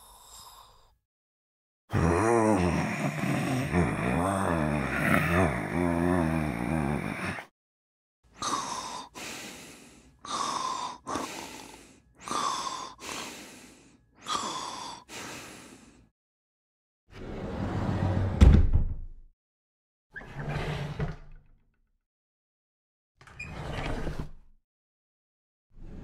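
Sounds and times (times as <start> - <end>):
person snoring: 0.0 - 1.0, 1.9 - 7.5, 8.3 - 16.1.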